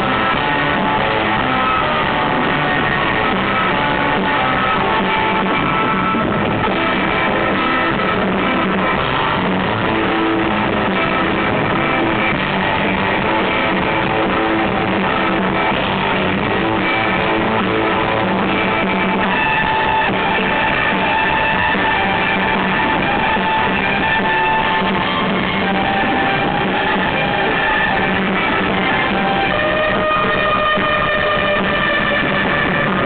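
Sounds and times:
drum kit: 0.0 - 33.0
electric guitar: 0.0 - 33.0
surf rock band playing live: 0.0 - 33.0.

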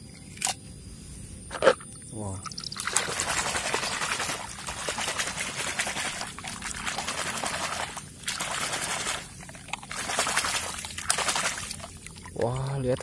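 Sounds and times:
water splashing and sloshing: 2.4 - 13.0
hand scrubbing toy in water: 2.9 - 13.0.

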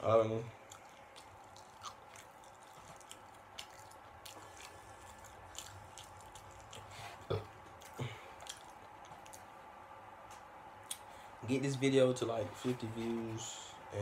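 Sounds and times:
person chewing food: 0.5 - 9.7.

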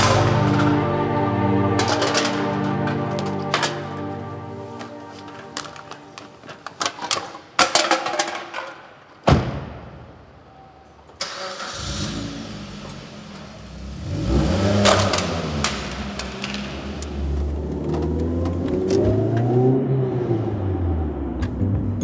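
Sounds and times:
rustling and clicking: 4.7 - 8.9
car engine starting and running: 11.2 - 22.0.

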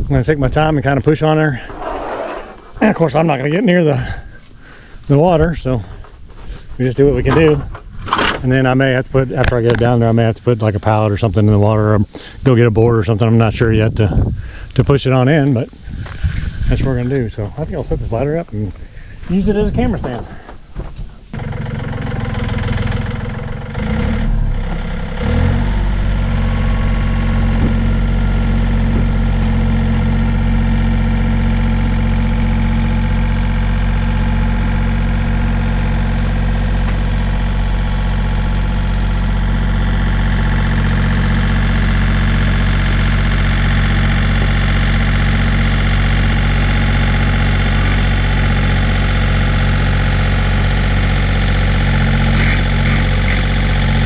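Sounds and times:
tractor diesel engine under load: 0.0 - 20.6, 21.3 - 54.0.

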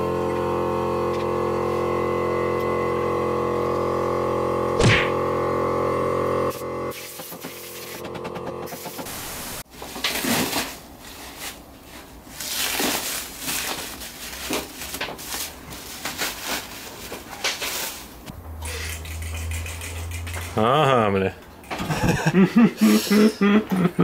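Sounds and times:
plastic wrap crinkling: 9.8 - 18.3.

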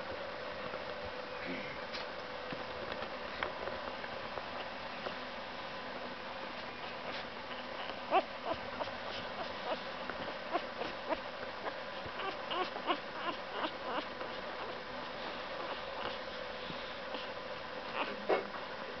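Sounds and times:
faint steady hum: 0.0 - 19.0
puppy squeaking and whimpering: 6.8 - 16.2, 17.8 - 18.4.

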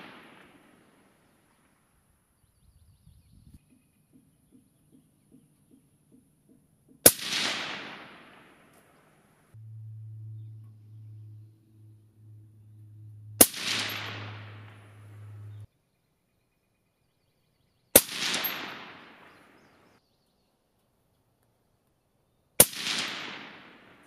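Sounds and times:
rifle shots with echo: 0.0 - 1.8, 7.0 - 9.4, 13.4 - 15.6, 18.0 - 20.0, 22.6 - 24.0.

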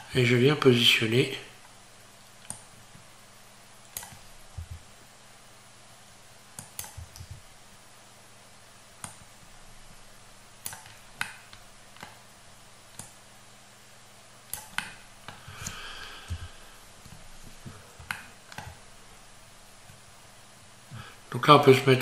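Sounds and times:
mouse and keyboard clicks: 3.9 - 4.8, 6.6 - 7.4, 10.6 - 12.2, 12.9 - 13.2, 14.5 - 16.4, 18.0 - 18.8.

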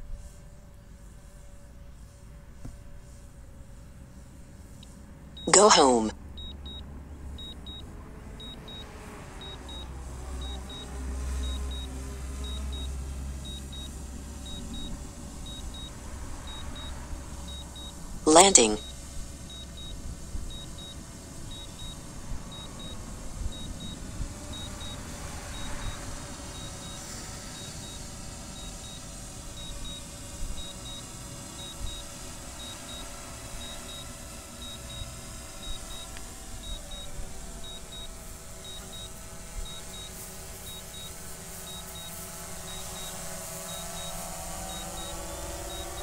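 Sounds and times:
steady background noise: 0.0 - 46.0
drone high double beep: 5.4 - 6.8, 42.7 - 46.0.

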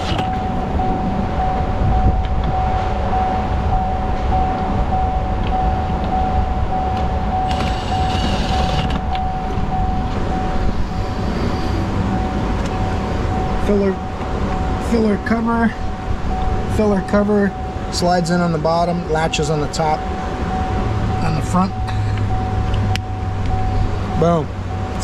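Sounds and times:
low rumble with constant tone: 0.0 - 25.0
impact driver driving a screw: 7.5 - 9.0.

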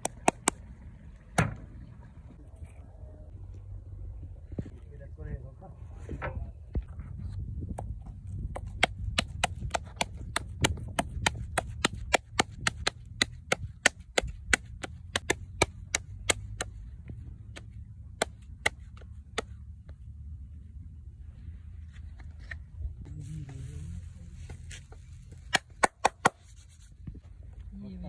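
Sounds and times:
palms slapping dough: 0.0 - 0.6, 8.4 - 19.6
steady low rumble: 0.0 - 25.8.

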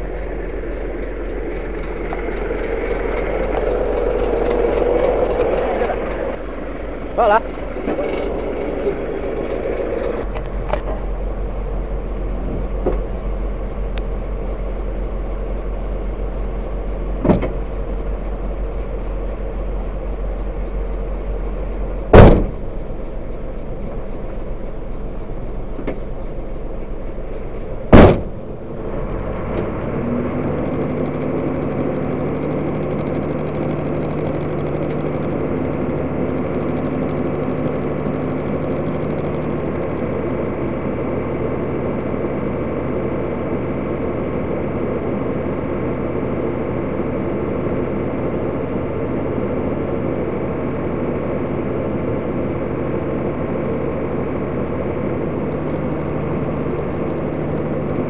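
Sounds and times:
diesel engine idling: 0.0 - 58.0
sharp knocks: 22.1 - 22.6, 27.9 - 28.4.

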